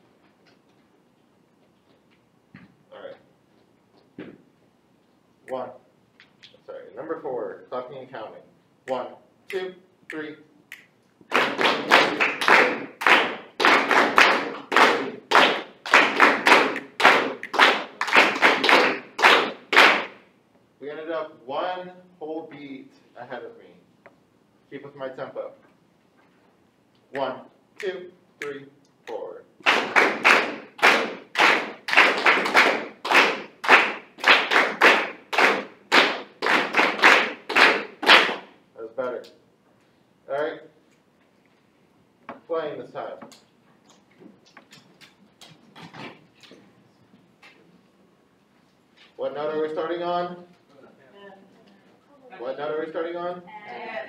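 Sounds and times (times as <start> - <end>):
group clapping a rhythm: 8.9 - 20.3, 27.1 - 38.6.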